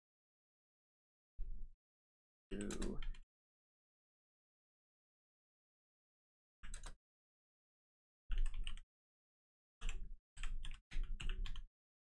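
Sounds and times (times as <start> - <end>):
typing on a computer keyboard: 2.6 - 3.2, 6.6 - 7.0, 8.3 - 8.8, 9.8 - 11.7.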